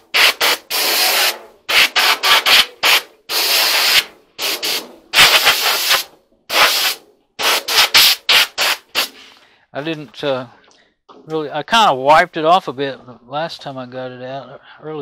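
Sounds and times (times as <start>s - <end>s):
compressed air blasts hissing: 0.0s - 9.4s.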